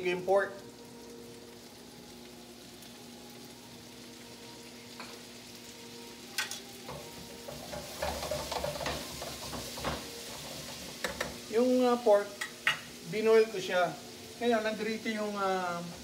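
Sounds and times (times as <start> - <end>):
food sizzling in a wok: 0.0 - 16.0
tongs scraping and clattering on pan: 6.3 - 11.6, 12.3 - 13.0.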